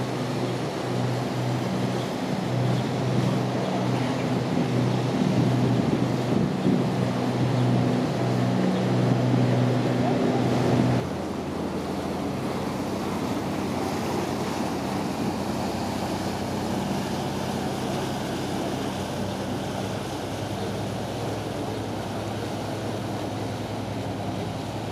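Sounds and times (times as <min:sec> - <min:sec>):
boat engine hum: 0:00.0 - 0:24.9
propeller wash churning water: 0:00.0 - 0:24.9
wind on microphone: 0:01.6 - 0:11.1.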